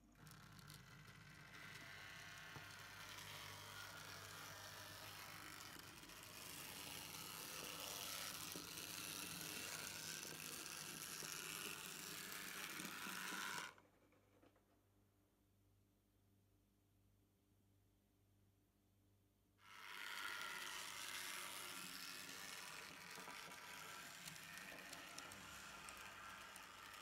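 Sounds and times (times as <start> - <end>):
model train motor whir: 0.0 - 13.8, 19.6 - 27.0.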